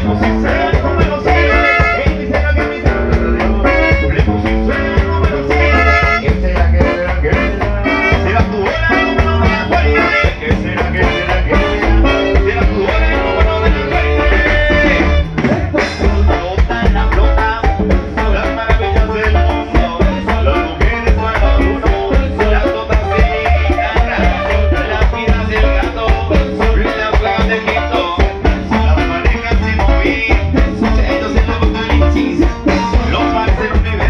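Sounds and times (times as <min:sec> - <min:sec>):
band playing dance music: 0:00.0 - 0:34.0
saxophones: 0:00.4 - 0:02.5, 0:03.2 - 0:15.7, 0:21.6 - 0:25.3.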